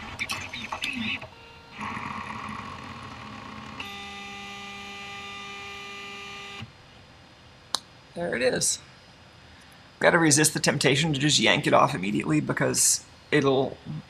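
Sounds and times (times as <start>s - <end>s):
printer stepper motors running: 0.0s - 6.7s.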